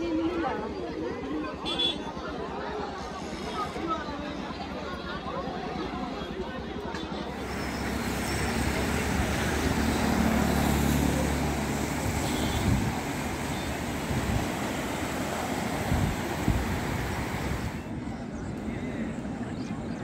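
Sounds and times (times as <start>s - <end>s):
floodwater rushing: 7.3s - 17.9s.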